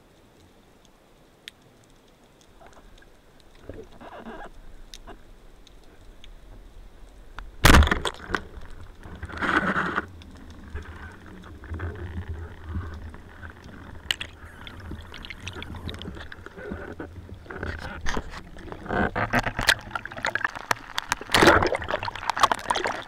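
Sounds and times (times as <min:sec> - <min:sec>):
small clicks underwater: 0:00.0 - 0:23.0
speargun firing crack: 0:07.6 - 0:08.2
hissing water noise: 0:08.2 - 0:23.0
low underwater rumble: 0:08.4 - 0:23.0.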